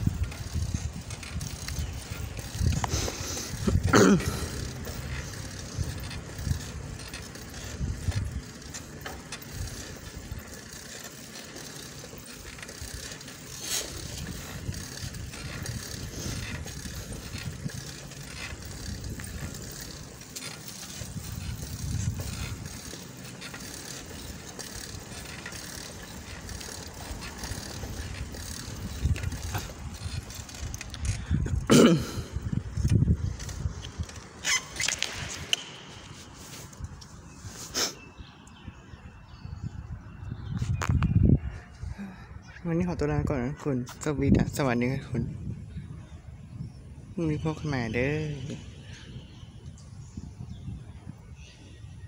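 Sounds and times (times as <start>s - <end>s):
low rumbling: 0.0s - 34.4s
bicycle ticks and rattles: 0.0s - 37.4s, 38.1s - 42.2s, 43.8s - 46.9s, 47.5s - 52.0s.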